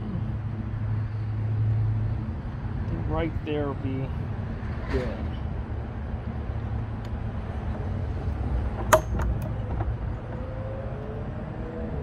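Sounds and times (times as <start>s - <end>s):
low outdoor rumble: 0.0s - 12.0s
metal gate latch clicks: 8.8s - 9.6s.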